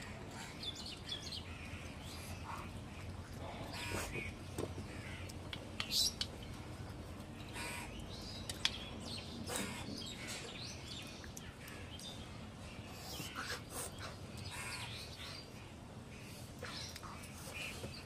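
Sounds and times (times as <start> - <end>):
eating by hand: 0.0 - 18.0
crows cawing: 7.5 - 8.0.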